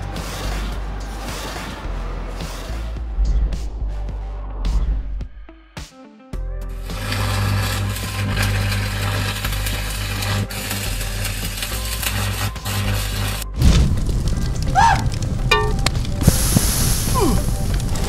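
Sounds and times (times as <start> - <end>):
arc welding crackling hiss: 6.7 - 18.0
rush of flames: 6.9 - 18.0.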